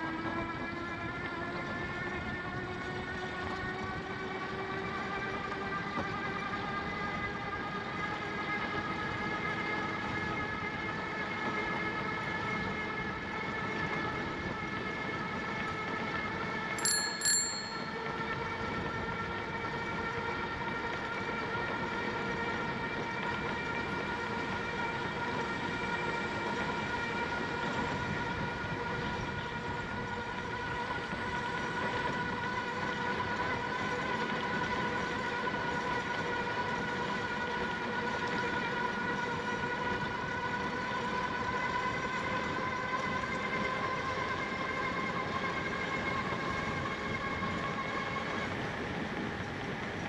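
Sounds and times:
bicycle whine: 0:12.4 - 0:24.2.

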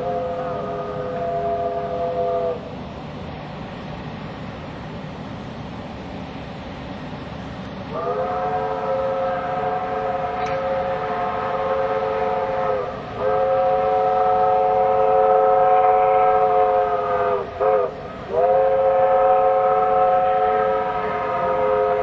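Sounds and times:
steam locomotive whistle blasts: 0:00.0 - 0:02.7, 0:07.9 - 0:22.0.

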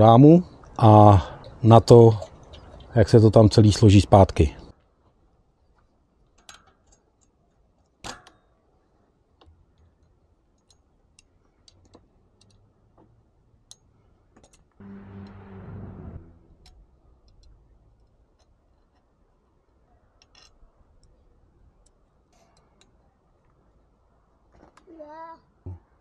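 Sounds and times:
bike parts and tools clicking: 0:06.3 - 0:08.6, 0:09.4 - 0:14.8, 0:20.2 - 0:21.2
short low buzz: 0:14.8 - 0:16.8.

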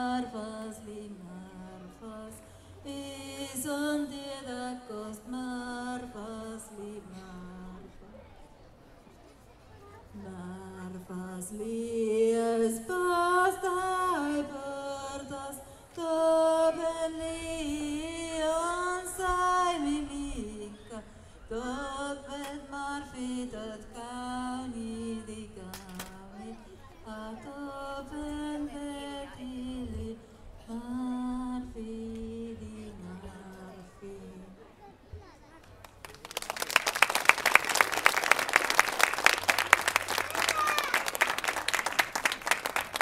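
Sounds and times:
woman singing: 0:00.0 - 0:08.1, 0:10.2 - 0:34.7.

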